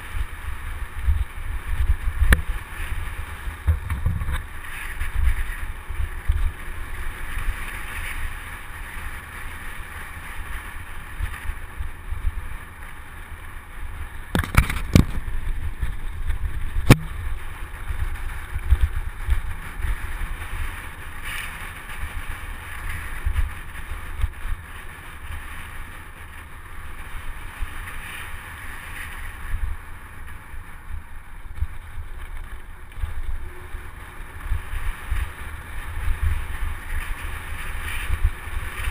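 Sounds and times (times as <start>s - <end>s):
wind buffeting microphone: 0.0s - 12.8s, 13.6s - 38.9s
bike tyre rumble on dirt: 0.0s - 38.9s
sharp knocks from bike: 14.4s - 15.3s, 16.8s - 17.2s
bike frame rattle: 14.4s - 16.0s.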